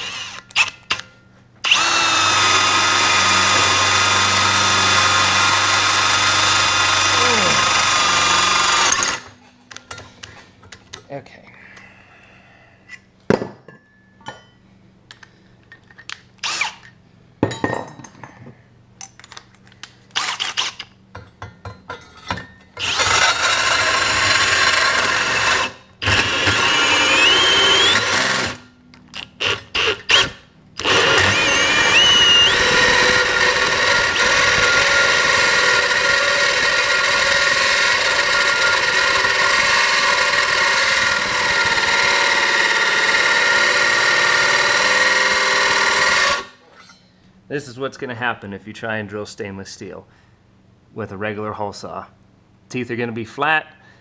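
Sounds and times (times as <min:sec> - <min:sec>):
drill hole saw grinding steel: 0:00.0 - 0:01.0, 0:01.6 - 0:09.3, 0:16.4 - 0:16.8, 0:22.8 - 0:28.6, 0:29.2 - 0:46.6
rising squeals: 0:31.2 - 0:34.9.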